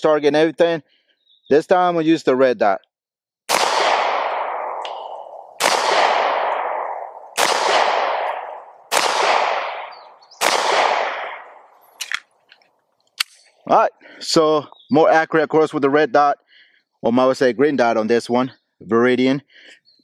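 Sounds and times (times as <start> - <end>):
pistol shots echoing: 3.5 - 12.2.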